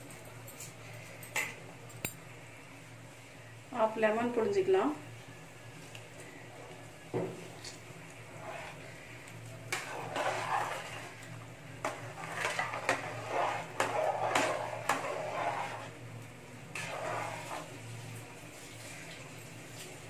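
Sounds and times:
low steady hum: 0.0s - 20.0s
spatula stirring wet rice: 7.5s - 19.0s.

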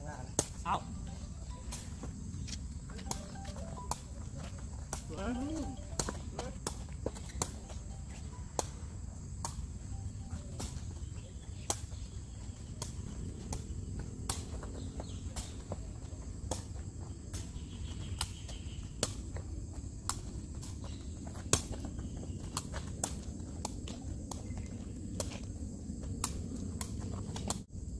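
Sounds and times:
thin high tone: 3.0s - 4.5s, 5.1s - 6.6s, 7.5s - 9.0s, 10.0s - 11.1s
ball being kicked: 3.0s - 8.7s.

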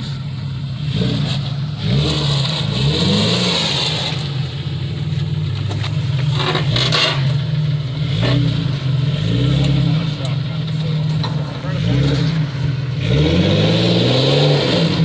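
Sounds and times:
car engine at low speed: 0.0s - 15.0s
scraping noise: 5.3s - 7.4s.

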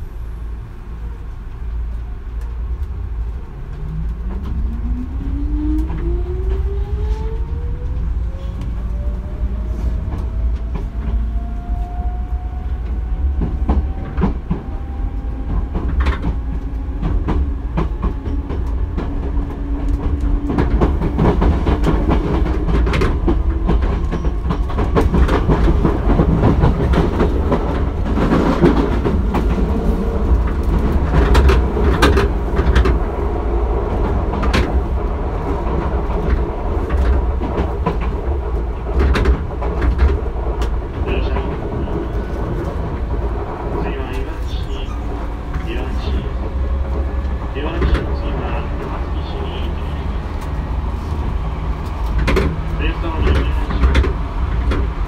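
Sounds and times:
train running rumble: 0.0s - 55.0s
rail-joint clacks: 12.8s - 55.0s.

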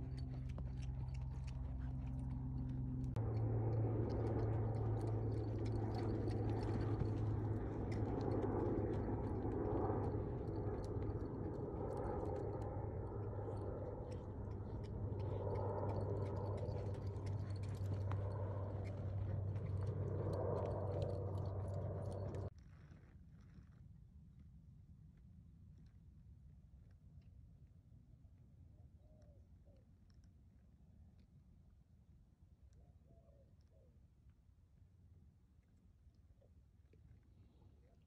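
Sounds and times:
hoofbeats thudding in sand: 0.0s - 22.5s
low hum and rushing noise: 0.0s - 22.5s.

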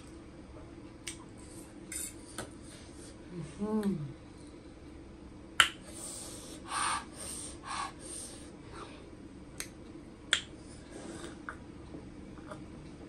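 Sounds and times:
mouth clicks while eating: 1.0s - 1.3s, 9.6s - 10.6s
breathy hisses: 5.9s - 9.0s.

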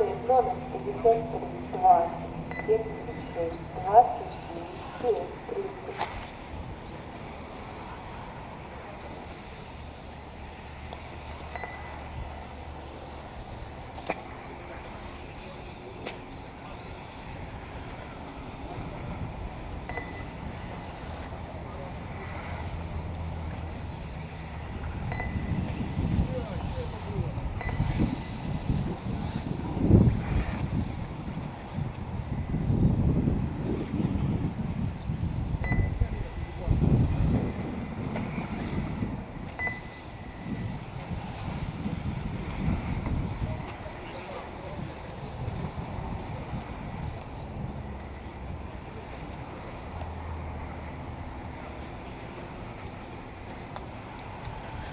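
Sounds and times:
faint rising whine: 0.0s - 31.1s
rc buggies running: 0.0s - 33.2s
wind rumbling on microphone: 0.0s - 54.9s.

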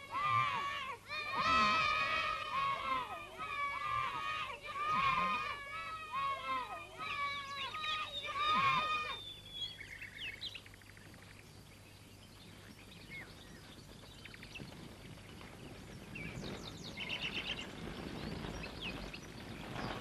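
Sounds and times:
birds chirping and trilling: 0.0s - 20.0s
horse hooves on dirt road: 12.5s - 20.0s.

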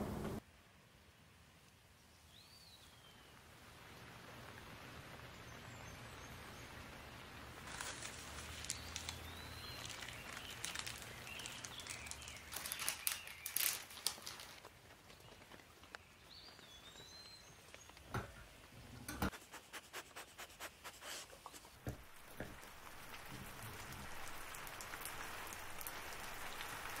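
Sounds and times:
rain patter: 0.0s - 19.0s, 20.2s - 27.0s
bird chirps: 8.6s - 13.7s.

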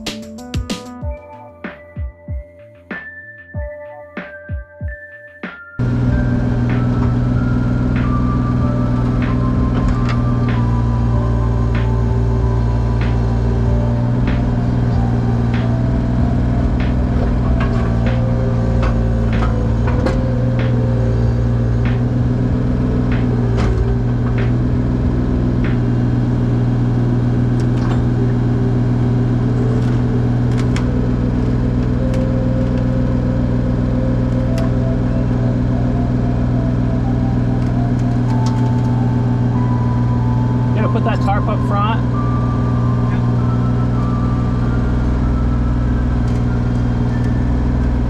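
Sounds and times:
excavator diesel engine running: 5.8s - 48.0s
hydraulic whine: 5.8s - 48.0s
sharp clicks and knocks: 16.6s - 20.8s.

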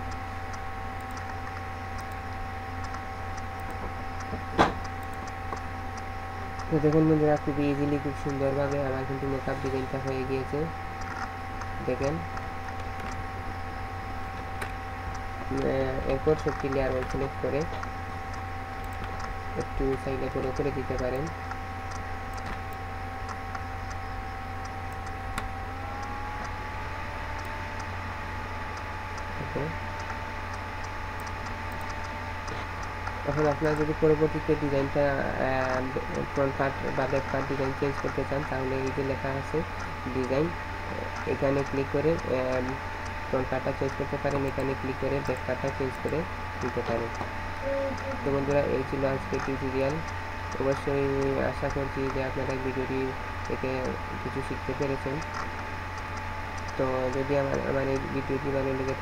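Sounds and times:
low electrical hum: 0.0s - 59.0s
thin whining tone: 0.0s - 59.0s
mouse clicks: 31.2s - 33.8s.

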